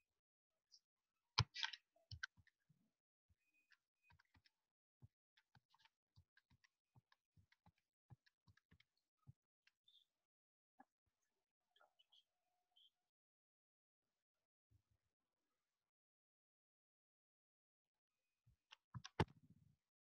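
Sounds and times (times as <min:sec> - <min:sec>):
faint irregular clicks: 0:03.6 - 0:10.0, 0:18.7 - 0:19.4.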